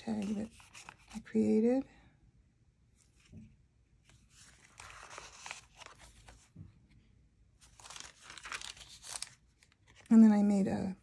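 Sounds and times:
paper rustling and crinkling: 0:00.0 - 0:01.3, 0:04.0 - 0:06.6, 0:07.6 - 0:10.2.

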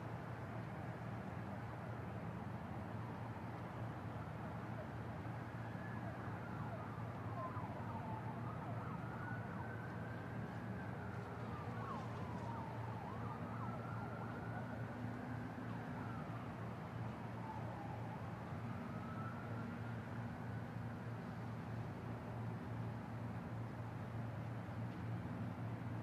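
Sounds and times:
city traffic hum: 0:00.0 - 0:26.0
siren wailing: 0:05.8 - 0:15.0.

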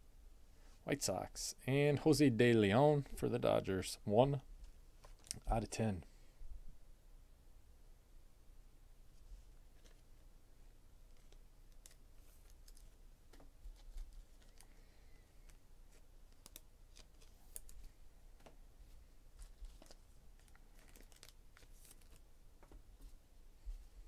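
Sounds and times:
trading cards clicking and rustling: 0:11.1 - 0:14.8, 0:15.4 - 0:18.6, 0:19.4 - 0:22.8.

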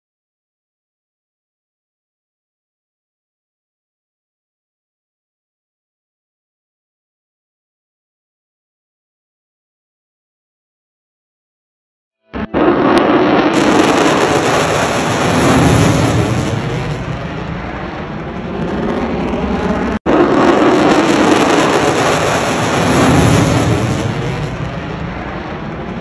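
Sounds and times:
loud jet flyby: 0:12.4 - 0:26.0.

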